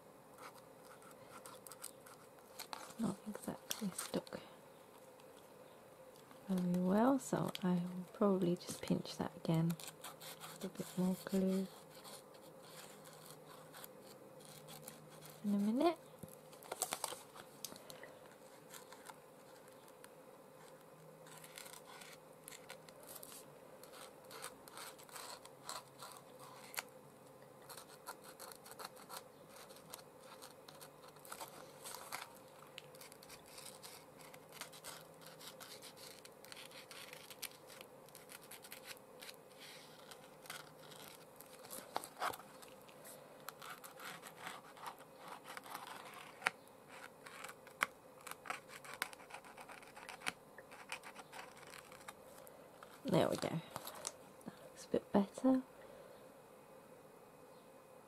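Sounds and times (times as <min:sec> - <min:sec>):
faint diffuser hum: 0:00.0 - 0:58.0
marker nib scratching and tapping paper: 0:09.6 - 0:16.8, 0:27.6 - 0:32.3, 0:33.0 - 0:39.4, 0:43.5 - 0:52.2.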